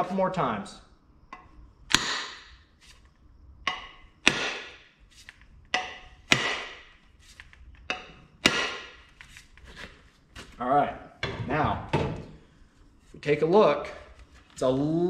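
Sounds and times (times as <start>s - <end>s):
maul striking wooden handle: 1.3s - 2.8s, 3.6s - 9.2s.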